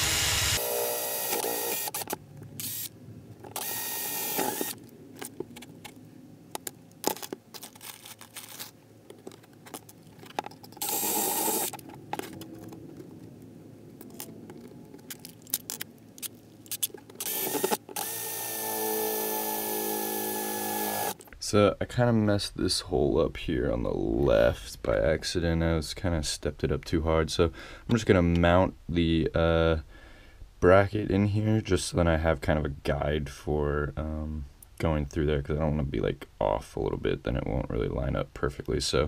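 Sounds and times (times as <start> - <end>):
cordless drill drilling metal: 0.0 - 2.9, 3.5 - 4.8, 10.8 - 11.8, 17.2 - 21.2
scraping: 4.5 - 13.3.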